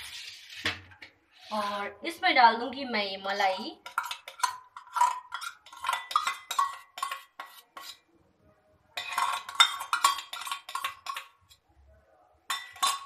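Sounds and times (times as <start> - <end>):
metal spoon scraping a steel bowl: 0.0 - 2.1, 3.4 - 8.2, 9.0 - 11.7, 12.5 - 13.0.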